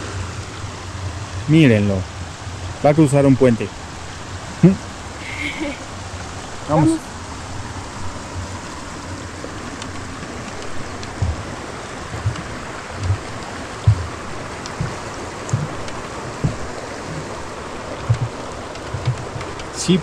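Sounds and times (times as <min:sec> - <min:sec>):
stream water rushing: 0:00.0 - 0:20.0
short low thumps: 0:11.0 - 0:19.7.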